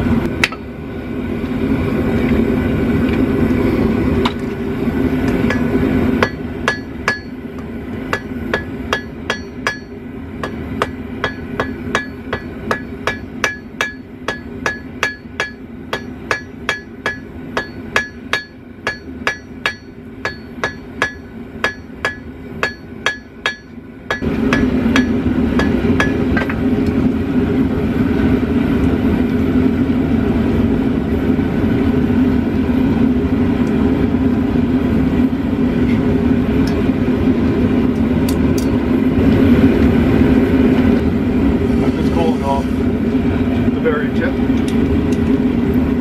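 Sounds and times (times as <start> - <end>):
hammer striking steel on anvil: 0.4 - 0.6, 5.2 - 26.6.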